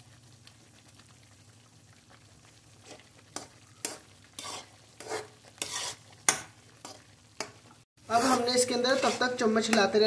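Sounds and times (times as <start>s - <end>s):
spatula scraping a pan: 2.8s - 9.8s.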